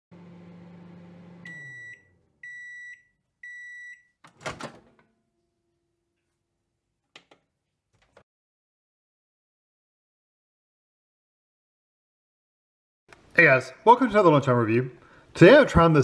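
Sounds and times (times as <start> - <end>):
microwave oven humming: 0.1 - 3.7
microwave beeps: 0.4 - 4.2
microwave door popping open: 4.3 - 5.0.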